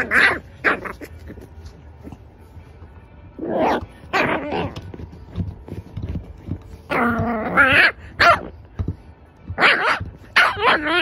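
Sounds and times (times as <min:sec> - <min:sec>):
puppy muffled barks: 0:00.0 - 0:01.5, 0:06.9 - 0:08.6, 0:09.5 - 0:11.0
puppy whining: 0:06.9 - 0:08.5, 0:09.6 - 0:11.0.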